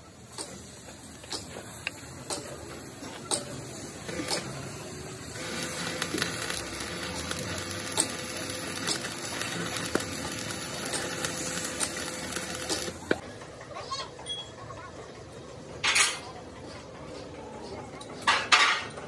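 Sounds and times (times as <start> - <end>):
welding arc crackling: 0.0 - 13.2.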